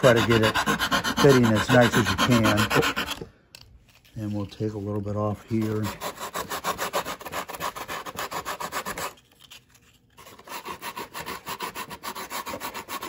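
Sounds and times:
sandpaper rubbing on foam: 0:00.0 - 0:03.2, 0:05.5 - 0:09.2, 0:10.2 - 0:13.0.

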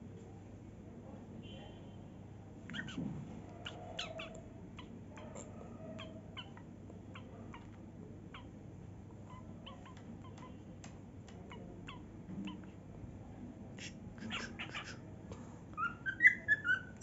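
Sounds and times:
cockatiel chirping: 0:02.7 - 0:03.0, 0:13.8 - 0:15.0, 0:15.8 - 0:17.0.

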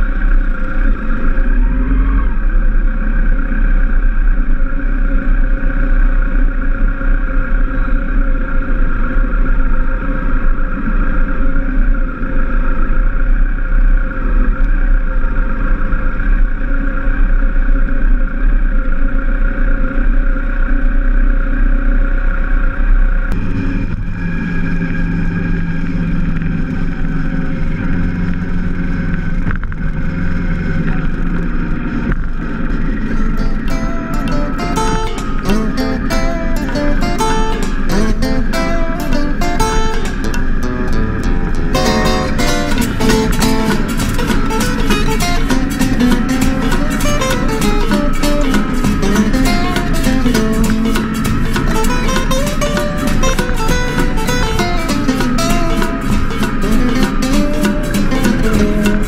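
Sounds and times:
motorcycle engines rumbling: 0:00.0 - 0:59.0
wind noise on microphone: 0:23.3 - 0:59.0.

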